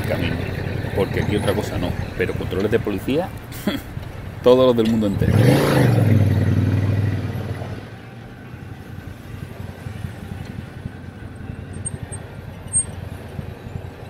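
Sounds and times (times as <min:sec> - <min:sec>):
motorcycle engine idling: 0:00.0 - 0:02.6, 0:08.0 - 0:14.0.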